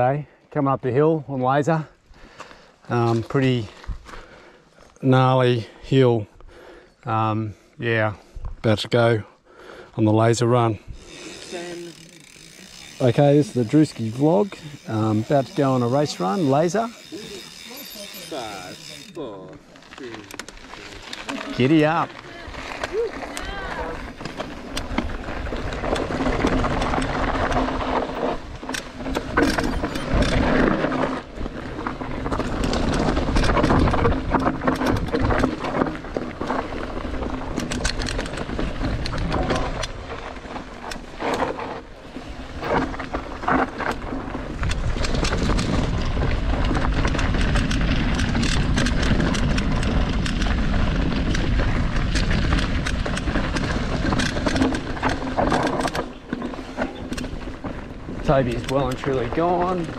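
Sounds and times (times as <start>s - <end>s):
bike rattling over bumps: 10.4s - 59.9s
tyre noise: 11.0s - 59.9s
wind rumble on microphone: 29.1s - 40.2s, 43.8s - 56.0s.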